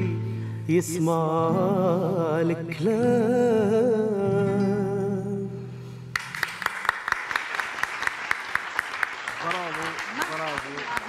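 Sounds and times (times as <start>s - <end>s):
hand clapping: 6.1s - 11.0s.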